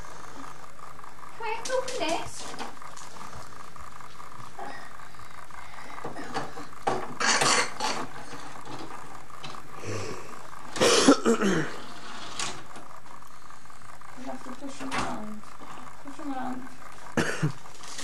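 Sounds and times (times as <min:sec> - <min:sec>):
steady background hum: 0:00.0 - 0:18.0
person coughing: 0:07.2 - 0:07.8, 0:10.8 - 0:11.8, 0:17.2 - 0:17.6.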